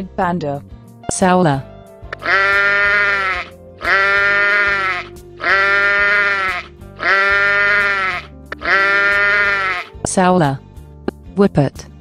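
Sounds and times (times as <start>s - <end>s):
background music: 0.0s - 12.0s
animal bleating: 2.2s - 10.0s.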